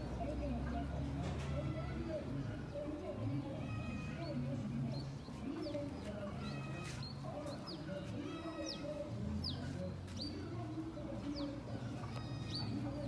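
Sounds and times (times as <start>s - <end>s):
small bird chirping: 3.6s - 13.0s.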